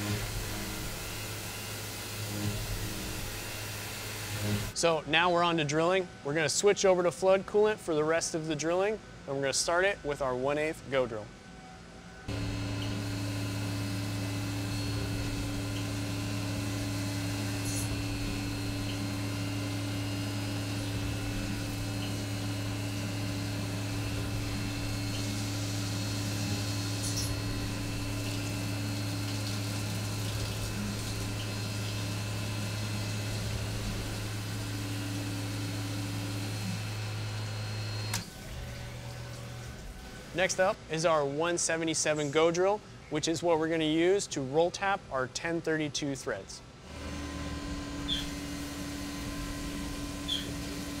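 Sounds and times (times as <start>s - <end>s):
mill spindle hum: 0.0s - 5.0s, 11.2s - 40.9s, 46.8s - 51.0s.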